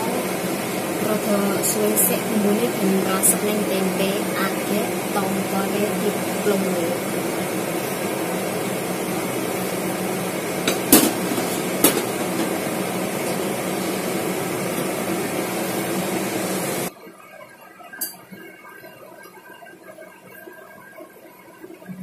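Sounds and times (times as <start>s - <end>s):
stove hiss and hum: 0.0s - 16.9s.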